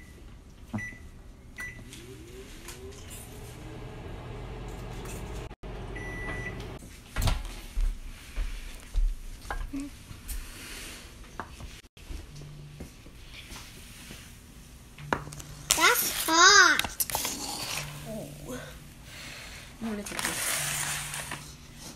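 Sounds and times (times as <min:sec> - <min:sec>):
microwave beep: 0:00.0 - 0:04.6, 0:05.6 - 0:06.8
microwave oven humming: 0:00.0 - 0:06.8.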